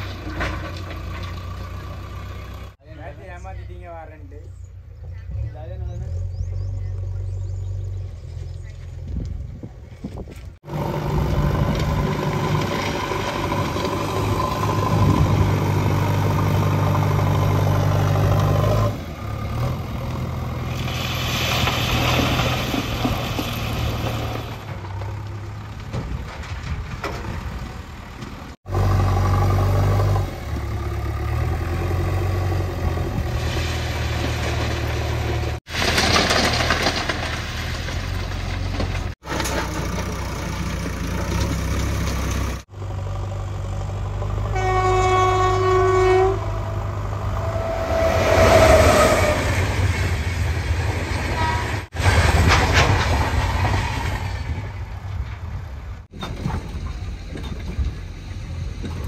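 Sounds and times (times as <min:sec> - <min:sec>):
diesel engines running: 0:10.4 - 0:45.5, 0:46.2 - 0:59.0
horn sounding: 0:44.4 - 0:49.6.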